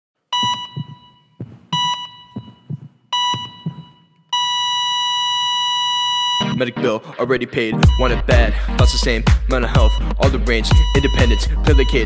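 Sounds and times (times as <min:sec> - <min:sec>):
heartbeat thumping: 0:00.4 - 0:04.1, 0:07.8 - 0:12.0
patient monitor beeps: 0:00.4 - 0:06.6, 0:10.8 - 0:12.0.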